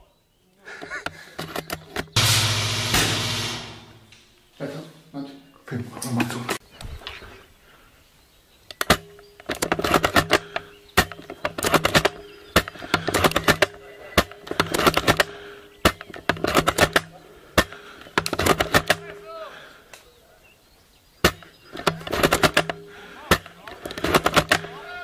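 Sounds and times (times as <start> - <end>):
airsoft rifles firing bursts: 2.1 - 4.0, 8.8 - 19.2, 21.2 - 25.0.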